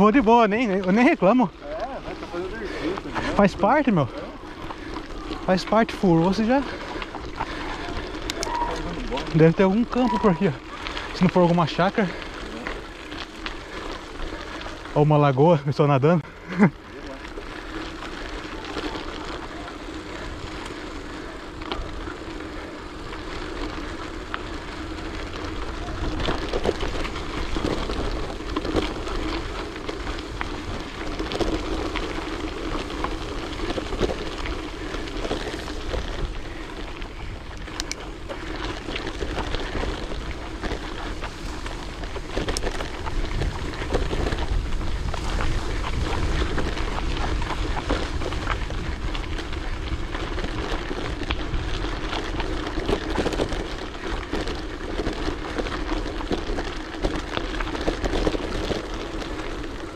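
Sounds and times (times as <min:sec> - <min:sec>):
tyres rolling on road: 0:00.0 - 0:59.9
small clicks and ticks: 0:00.4 - 0:15.8, 0:16.4 - 0:59.9
wind rumbling on microphone: 0:17.3 - 0:59.9.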